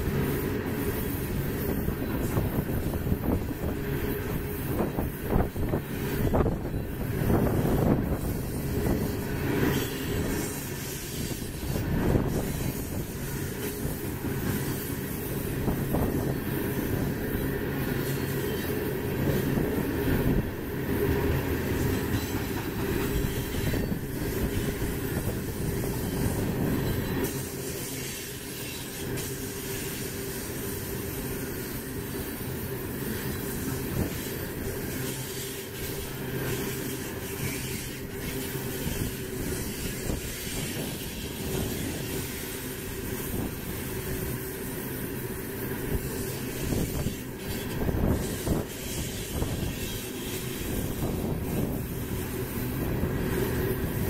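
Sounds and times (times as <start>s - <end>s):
steel wheels rumbling on rail: 0.0s - 54.0s
wheels clacking over rail joints: 21.1s - 30.0s.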